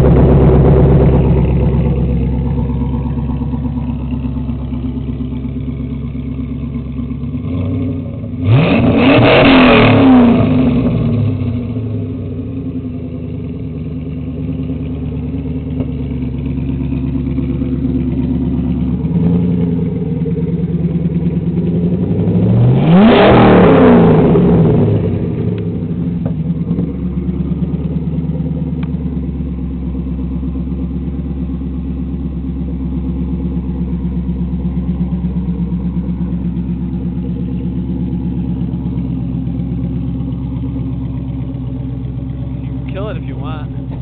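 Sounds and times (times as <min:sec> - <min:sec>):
car engine idling and revving: 0:00.0 - 0:44.0.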